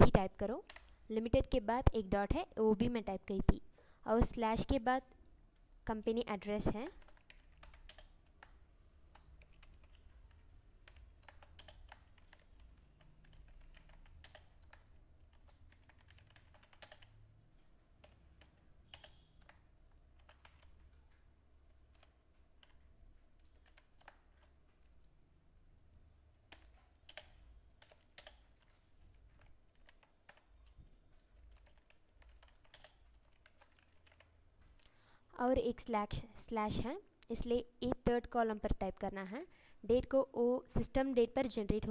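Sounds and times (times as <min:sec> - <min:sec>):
keyboard typing: 0:00.1 - 0:02.4, 0:05.5 - 0:35.0.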